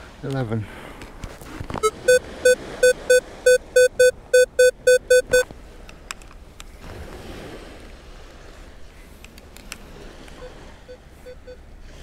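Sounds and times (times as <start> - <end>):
metal detector short beeps: 1.8 - 5.5, 10.4 - 11.6.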